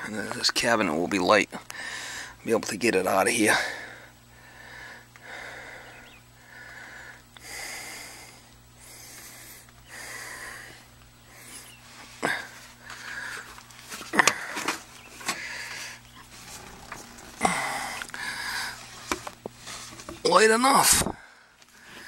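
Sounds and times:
faint steady hum: 0:00.0 - 0:22.0
man breathing hard: 0:01.7 - 0:02.4, 0:03.5 - 0:19.0, 0:21.1 - 0:22.0.

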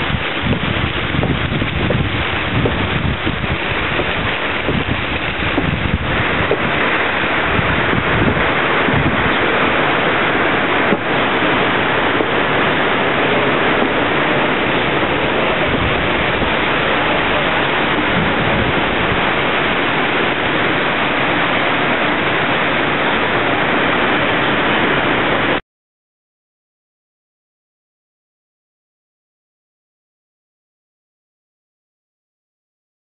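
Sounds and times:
water rushing through channels: 0:00.0 - 0:25.6
water splashing down: 0:00.0 - 0:25.6.

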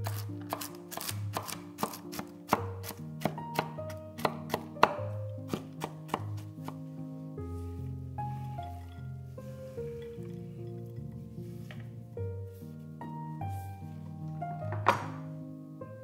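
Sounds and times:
knife chopping on cutting board: 0:00.0 - 0:06.8
background music: 0:00.0 - 0:16.0.

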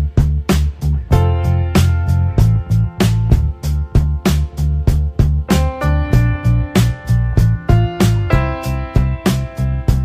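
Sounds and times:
background music with steady beat: 0:00.0 - 0:10.0
pulsing bass line: 0:00.0 - 0:10.0.

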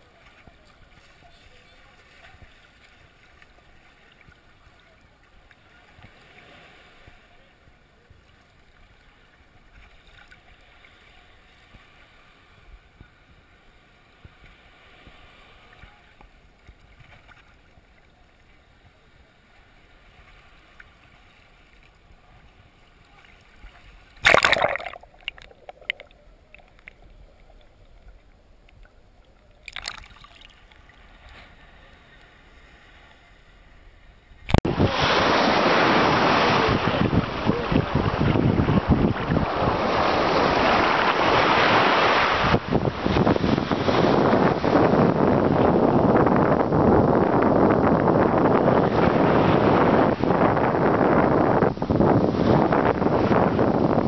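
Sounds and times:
sea water lapping: 0:19.9 - 0:28.4, 0:29.6 - 0:33.7
water splash: 0:24.1 - 0:27.7, 0:29.6 - 0:31.3, 0:34.5 - 0:42.6.

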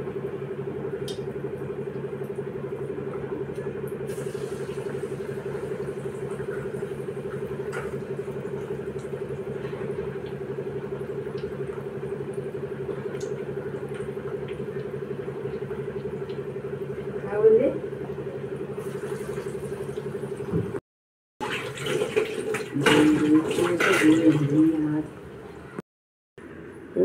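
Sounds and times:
food deep-frying in bubbling oil: 0:00.0 - 0:20.8
low mechanical hum: 0:00.0 - 0:20.8, 0:21.5 - 0:25.8, 0:26.4 - 0:27.0.

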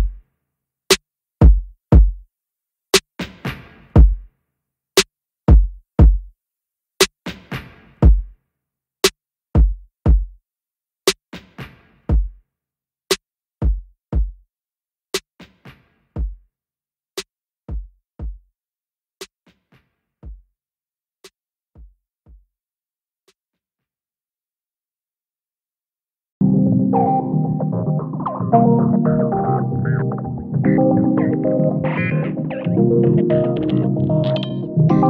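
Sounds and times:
electronic drum-machine beat: 0:00.0 - 0:00.2, 0:01.4 - 0:02.2, 0:03.2 - 0:04.3, 0:05.5 - 0:06.3, 0:08.0 - 0:08.3, 0:09.6 - 0:10.4, 0:12.1 - 0:12.4, 0:13.6 - 0:14.4, 0:16.2 - 0:16.4, 0:17.7 - 0:18.4, 0:20.2 - 0:20.4.

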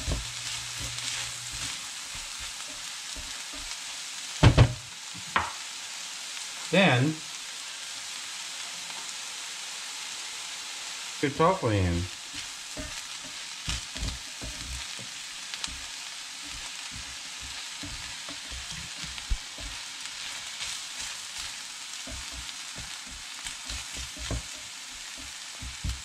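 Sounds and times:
food sizzling in a pan: 0:00.0 - 0:26.0
spatula knocking against pan: 0:12.7 - 0:15.1, 0:22.0 - 0:26.0.

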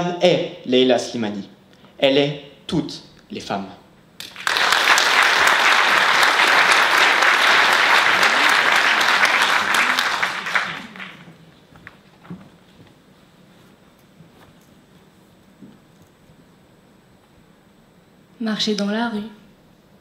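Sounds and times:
audience applauding: 0:04.2 - 0:11.4.

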